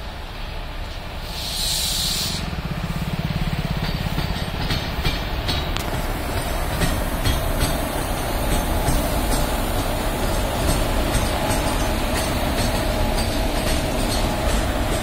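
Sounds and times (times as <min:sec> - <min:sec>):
short hiss: 0:01.2 - 0:02.4
wheels clicking over rail joints: 0:02.6 - 0:15.0.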